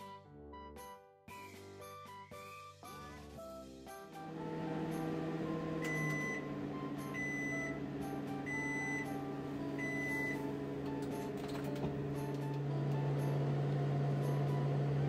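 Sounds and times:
oven motor hum: 0:04.1 - 0:15.0
oven beeping: 0:04.3 - 0:15.0.

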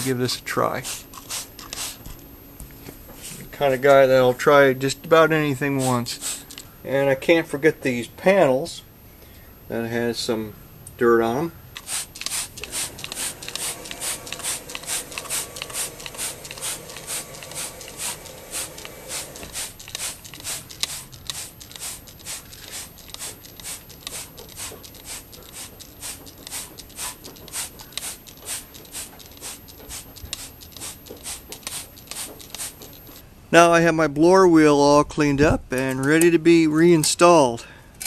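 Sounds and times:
spray bottle squirting: 0:00.7 - 0:02.2, 0:05.7 - 0:06.7, 0:11.8 - 0:33.2.

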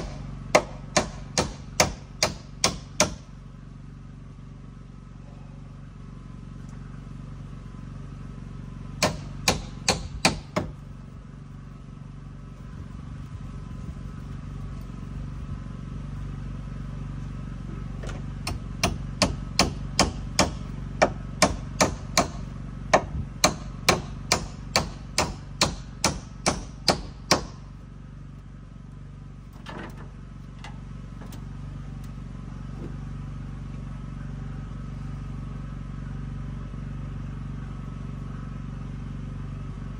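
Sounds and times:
hammer striking timber: 0:00.0 - 0:03.3, 0:09.0 - 0:10.8, 0:18.4 - 0:27.7.

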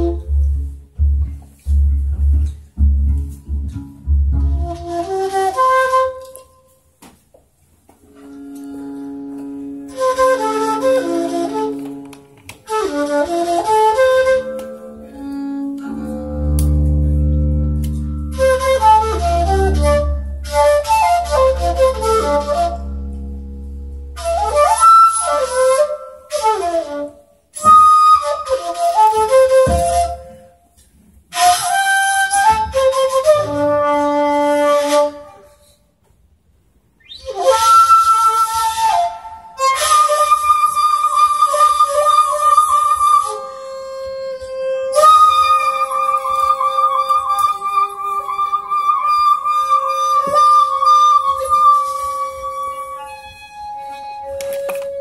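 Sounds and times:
bowed double bass low notes: 0:00.0 - 0:06.0, 0:14.0 - 0:25.8, 0:32.7 - 0:34.4.

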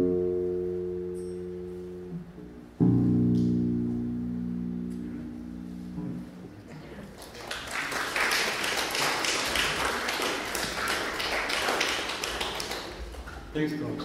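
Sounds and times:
electric bass guitar notes ringing: 0:00.0 - 0:06.7
audience applauding: 0:07.0 - 0:13.7.

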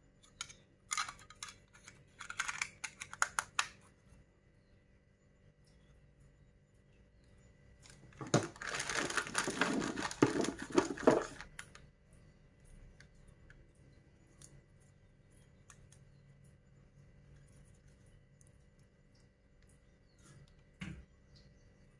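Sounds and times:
plastic bag crinkling: 0:07.9 - 0:11.8.

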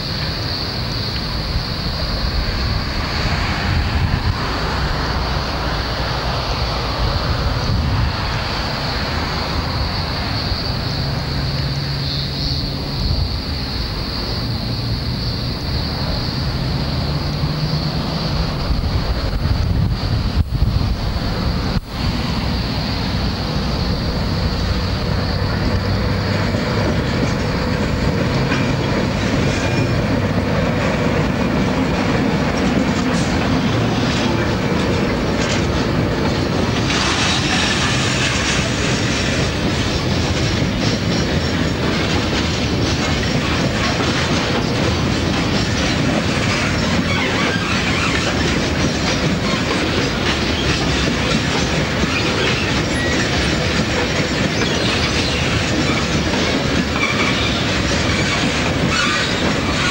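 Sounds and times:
diesel locomotive passing: 0:00.0 - 0:59.9
wagon wheels clattering over rail joints: 0:22.4 - 0:59.9.

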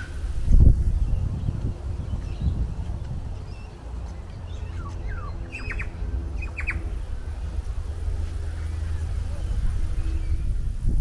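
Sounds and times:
bird calling: 0:00.0 - 0:07.1
wind rumbling on microphone: 0:00.0 - 0:11.0
harsh bird squawks: 0:04.7 - 0:06.9.

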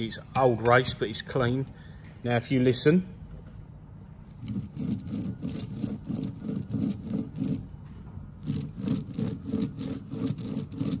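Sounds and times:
roller bearing grinding rumble: 0:04.3 - 0:11.0.

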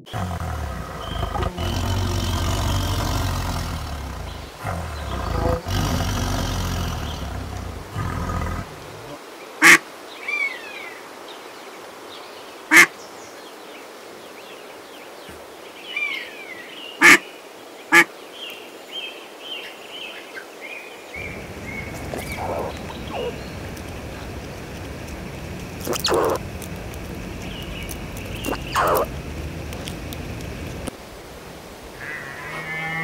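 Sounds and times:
ducks quacking: 0:01.0 - 0:09.8, 0:12.7 - 0:12.9, 0:17.0 - 0:17.2, 0:21.3 - 0:30.9
faint high chirping: 0:21.2 - 0:30.9.

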